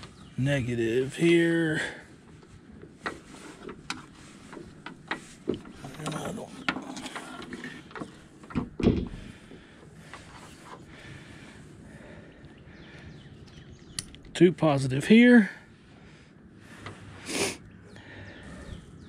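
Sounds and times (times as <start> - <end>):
metal frames on wooden boards: 0.0 - 11.6.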